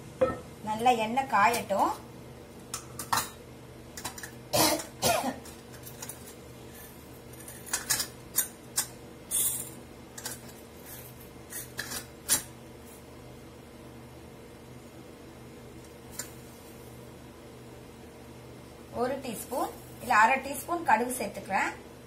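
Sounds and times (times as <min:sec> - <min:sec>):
steady low hum: 0:00.0 - 0:22.0
kitchen utensils and pots clinking: 0:07.4 - 0:12.5.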